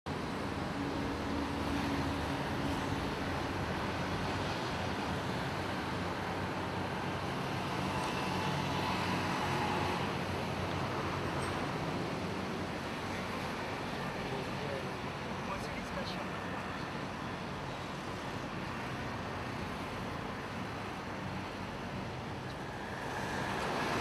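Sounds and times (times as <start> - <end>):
road traffic rumble: 0.1 - 24.0.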